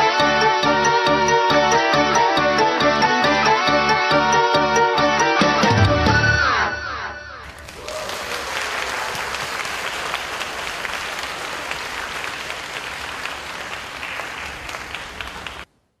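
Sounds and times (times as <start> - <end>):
audience applauding: 7.4 - 15.7.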